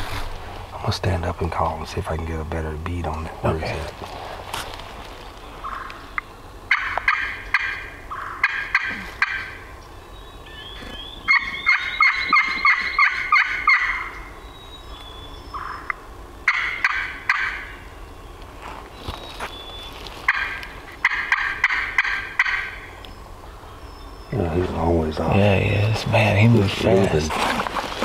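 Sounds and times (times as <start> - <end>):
turkey call raspy yelps: 5.6 - 9.7, 10.5 - 14.3, 15.5 - 17.9, 20.3 - 23.0.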